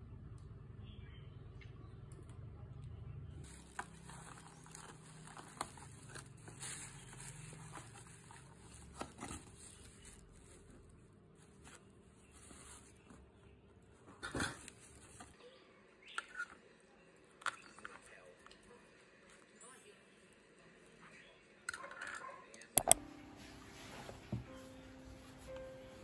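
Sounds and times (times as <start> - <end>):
cardboard box rustling: 3.4 - 13.2.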